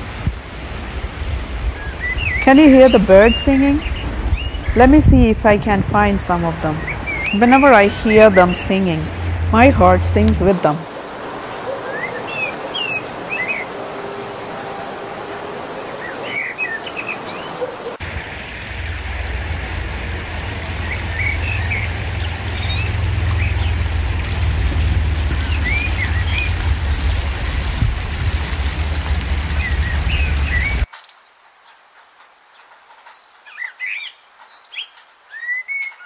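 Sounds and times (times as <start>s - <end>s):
songbirds chirping: 1.6s - 36.0s
low rumble: 3.8s - 10.5s, 18.0s - 30.9s.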